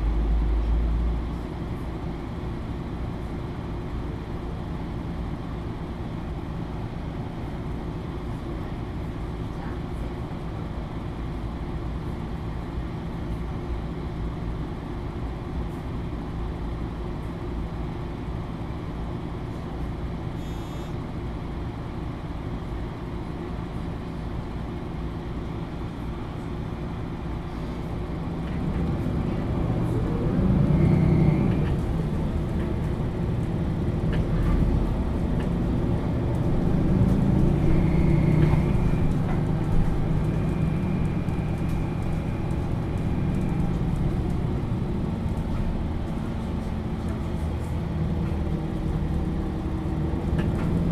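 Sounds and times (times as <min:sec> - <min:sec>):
bus diesel engine running: 0:00.0 - 0:50.9
engine whine accelerating: 0:28.4 - 0:45.4.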